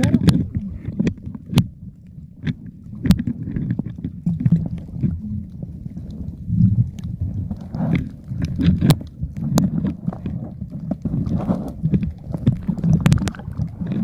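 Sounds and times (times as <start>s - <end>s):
underwater sloshing rumble: 0.0s - 14.0s.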